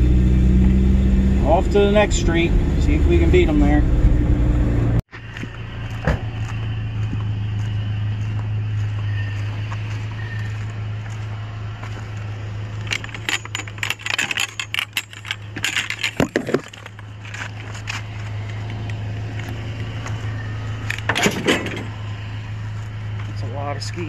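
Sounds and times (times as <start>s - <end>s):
metal poles clinking: 12.5s - 19.5s.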